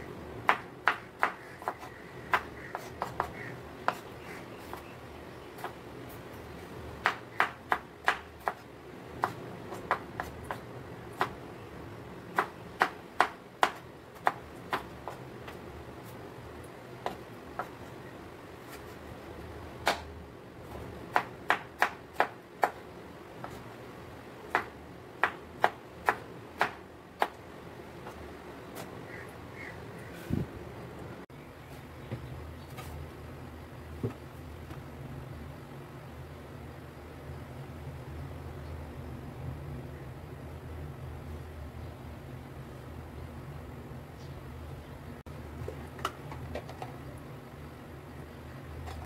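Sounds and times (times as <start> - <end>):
knife chopping on wooden board: 0.5 - 4.0.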